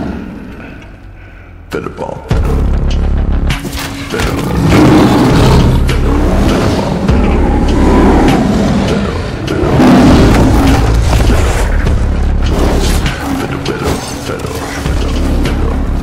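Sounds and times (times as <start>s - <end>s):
lion roaring and snarling: 3.7s - 16.0s
low rumble: 4.5s - 13.7s.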